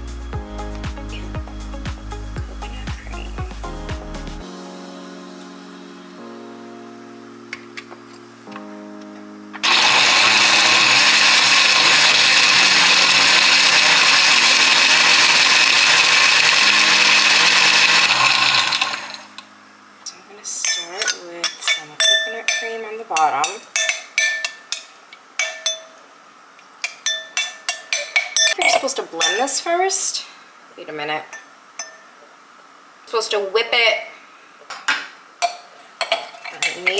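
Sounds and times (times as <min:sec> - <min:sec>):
blender running: 0:09.6 - 0:19.4
metal spoon clinking on glass: 0:20.6 - 0:26.0, 0:26.8 - 0:29.5, 0:31.3 - 0:32.2, 0:35.4 - 0:36.9.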